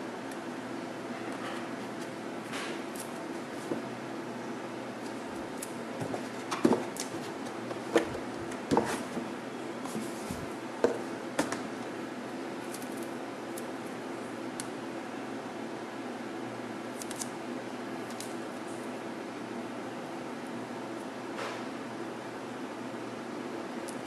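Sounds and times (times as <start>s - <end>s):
room hum: 0.0s - 24.0s.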